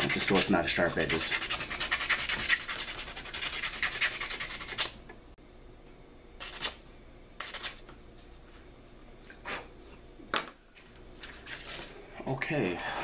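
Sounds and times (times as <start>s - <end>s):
sandpaper rubbing on bone: 0.0s - 5.0s, 6.4s - 6.8s, 7.4s - 7.8s.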